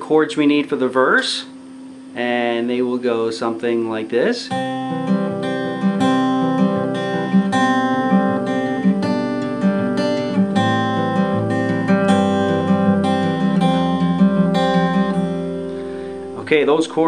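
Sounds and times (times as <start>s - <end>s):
fingerpicked acoustic guitar: 4.5s - 17.0s.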